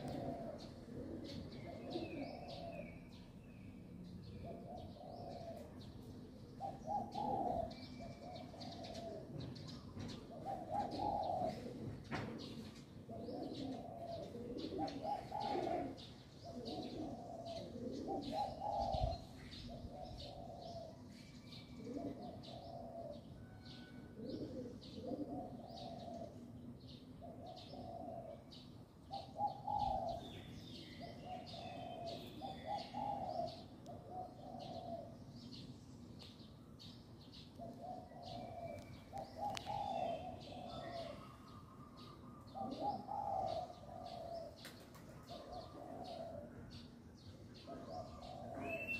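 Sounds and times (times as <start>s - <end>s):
dove cooing: 0.0s - 3.2s, 4.2s - 35.7s, 37.2s - 48.9s
small birds chirping: 24.3s - 48.9s.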